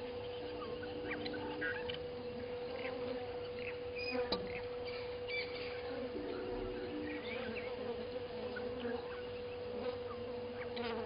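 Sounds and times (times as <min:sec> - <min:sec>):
steady insect drone: 0:00.0 - 0:11.0.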